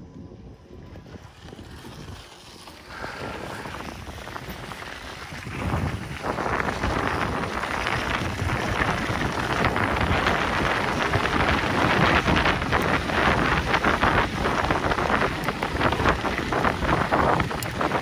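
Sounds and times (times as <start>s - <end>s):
bike rattling over bumps: 0.0s - 18.0s
wind on microphone: 0.0s - 18.0s
bike tyres crunching on gravel: 0.2s - 18.0s.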